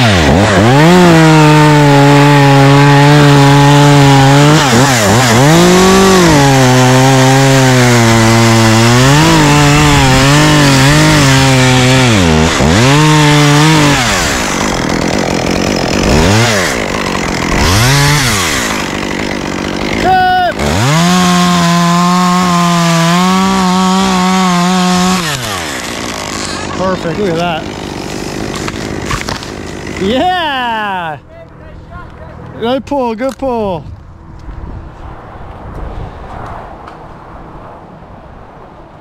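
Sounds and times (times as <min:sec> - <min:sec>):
chainsaw cutting wood: 0:00.0 - 0:31.0.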